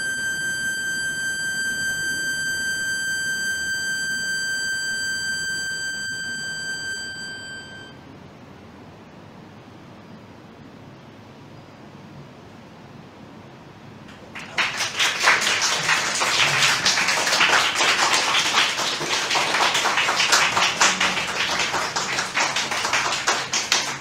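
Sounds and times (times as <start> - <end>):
audience applauding: 14.1 - 24.0.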